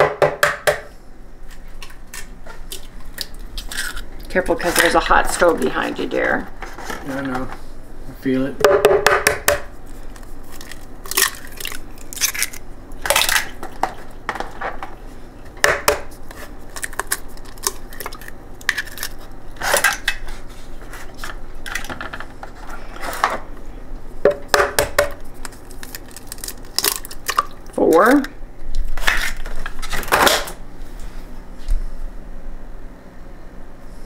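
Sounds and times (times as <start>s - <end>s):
eggshells breaking open: 3.2s - 4.4s, 10.5s - 13.8s, 16.7s - 19.9s, 25.4s - 27.7s
eggshell knocking on hard edge: 8.6s - 9.7s.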